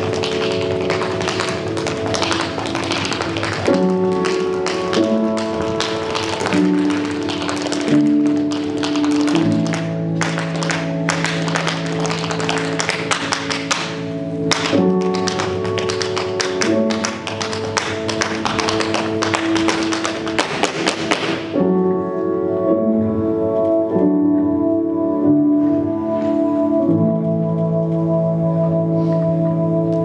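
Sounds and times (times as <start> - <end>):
tap shoes striking floor: 0.0 - 21.6.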